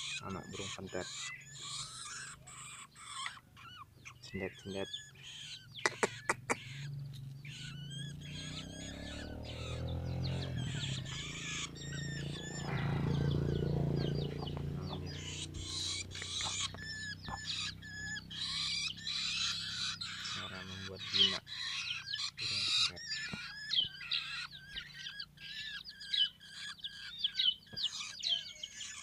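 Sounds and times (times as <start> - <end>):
birds chirping: 0.0 - 29.0
low rumble: 9.8 - 17.4
sharp taps: 15.6 - 17.5.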